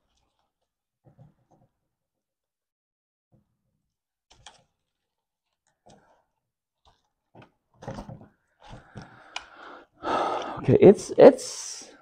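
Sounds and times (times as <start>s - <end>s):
plastic wires clicking and rustling: 0.0s - 1.8s, 3.4s - 9.5s.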